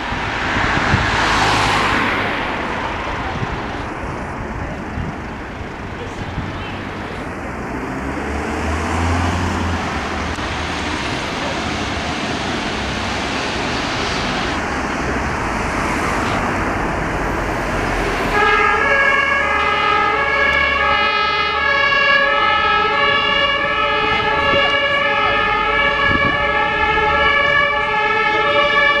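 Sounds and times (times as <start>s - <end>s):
street traffic: 0.0s - 29.0s
ambulance two-tone siren: 17.1s - 29.0s.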